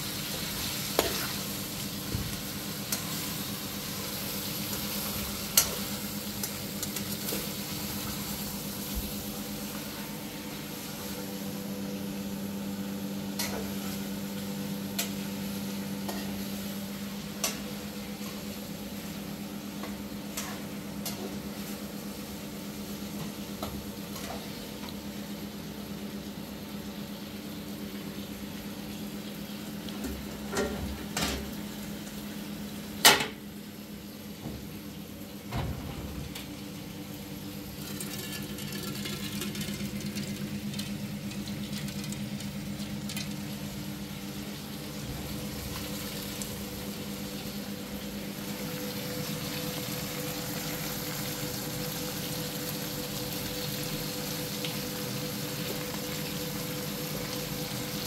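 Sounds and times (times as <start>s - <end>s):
pots and utensils clinking: 37.7s - 40.9s.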